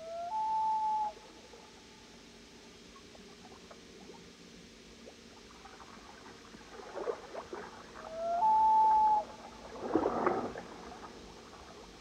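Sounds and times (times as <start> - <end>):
moose whistle-like call: 0.0 - 1.4, 8.1 - 9.4.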